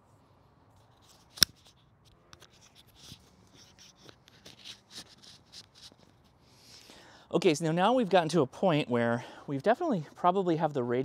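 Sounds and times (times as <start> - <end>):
rustling and scratching handling noise: 0.7 - 6.4.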